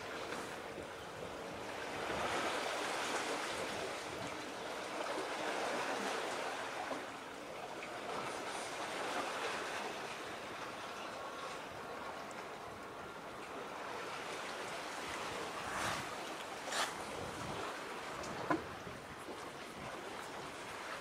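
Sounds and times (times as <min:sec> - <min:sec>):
water washing at shore: 0:13.6 - 0:21.0.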